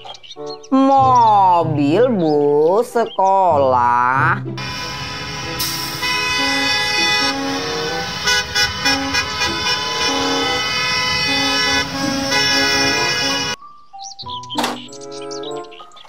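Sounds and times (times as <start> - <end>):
bus horns honking: 4.6 - 13.6.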